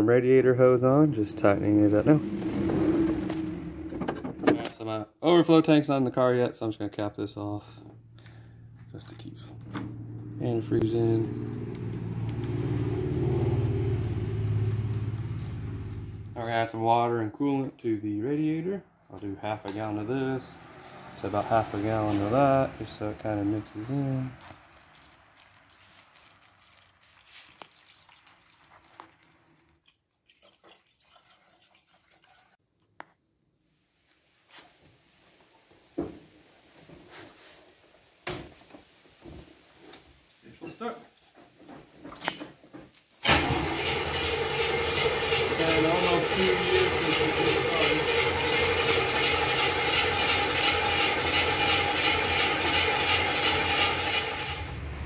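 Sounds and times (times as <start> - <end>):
car engine running: 0.1 - 4.7, 7.8 - 16.4, 43.4 - 55.0
liquid pouring through a funnel: 23.8 - 32.6.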